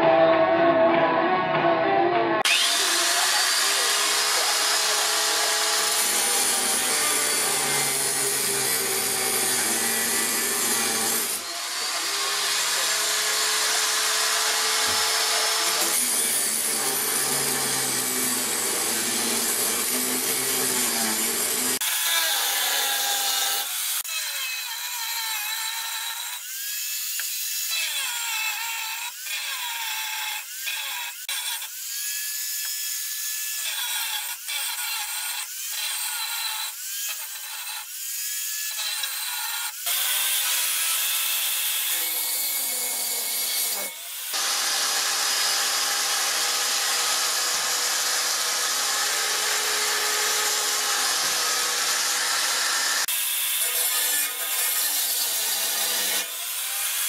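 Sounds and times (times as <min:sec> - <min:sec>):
angle grinder cutting steel: 0:02.4 - 0:57.0.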